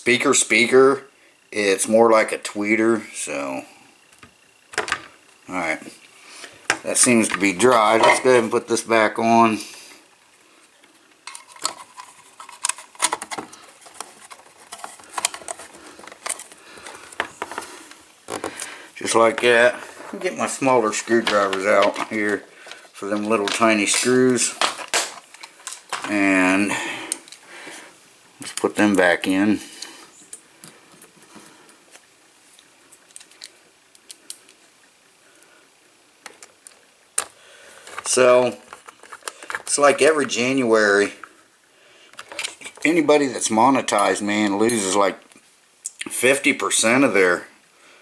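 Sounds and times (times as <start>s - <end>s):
hard plastic clicking and scraping: 11.2s - 18.7s, 21.1s - 26.2s, 36.2s - 40.4s.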